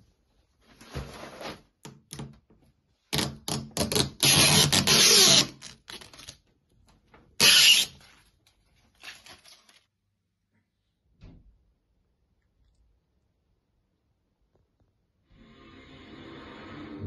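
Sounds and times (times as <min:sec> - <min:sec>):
plastic cover crinkling: 0:07.9 - 0:09.9.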